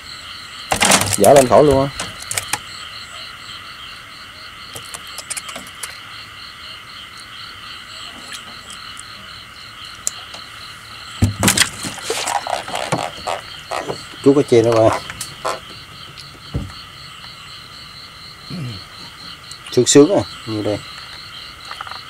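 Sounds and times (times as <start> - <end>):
frogs and insects chorus: 0.0 - 22.0.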